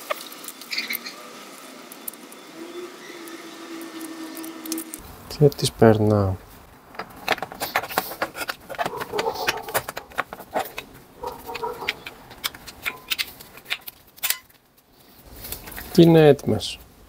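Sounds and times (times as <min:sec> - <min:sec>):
short squeaks: 0:02.4 - 0:05.0.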